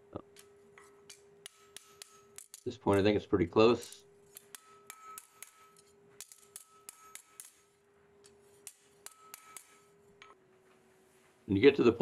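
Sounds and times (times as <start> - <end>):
hammer tapping steel on anvil: 0.2 - 3.2, 3.8 - 10.4
anvil ringing: 3.8 - 7.8, 8.6 - 10.4.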